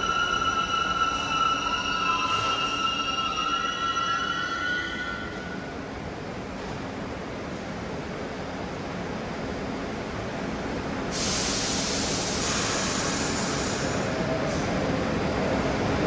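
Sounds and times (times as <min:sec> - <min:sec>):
subway train rumble: 0:00.0 - 0:16.0
loud hiss: 0:11.1 - 0:14.1.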